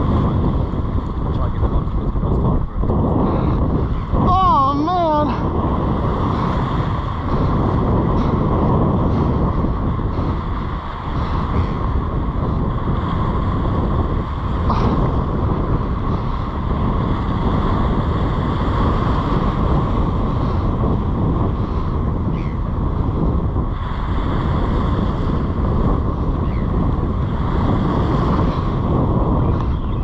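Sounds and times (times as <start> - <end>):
small waves washing on shore: 0.0 - 30.0
wind buffeting microphone: 0.0 - 30.0.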